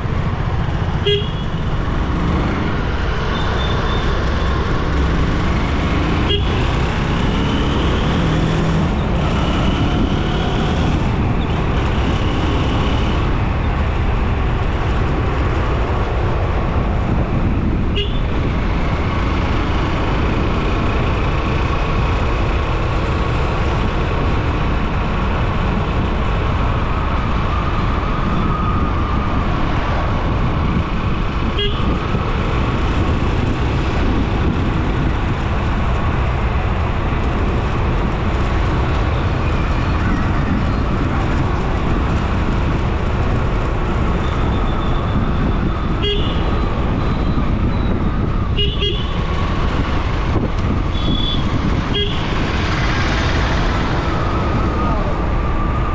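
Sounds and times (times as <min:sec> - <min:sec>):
vehicle engine and road noise: 0:00.0 - 0:55.9
car horn toots: 0:46.0 - 0:46.4, 0:48.6 - 0:49.2.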